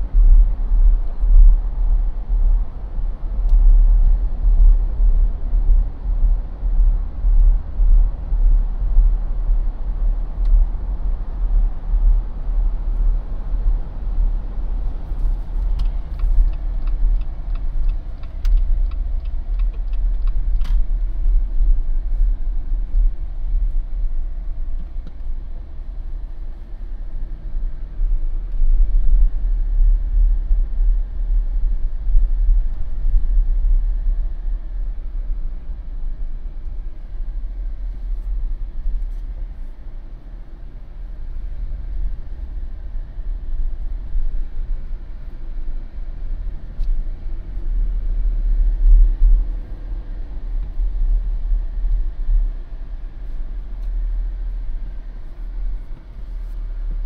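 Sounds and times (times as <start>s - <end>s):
car engine and road rumble: 0.0s - 57.0s
light evenly spaced ticks: 14.8s - 21.4s.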